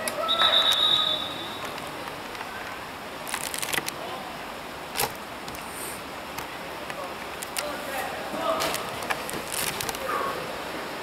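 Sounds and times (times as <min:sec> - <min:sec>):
distant voices: 0:00.0 - 0:11.0
referee's whistle: 0:00.2 - 0:01.7.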